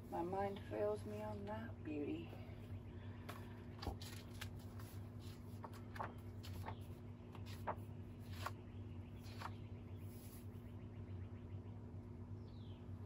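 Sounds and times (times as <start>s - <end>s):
faint steady hum: 0.0s - 13.0s
cards shuffling: 3.4s - 6.8s.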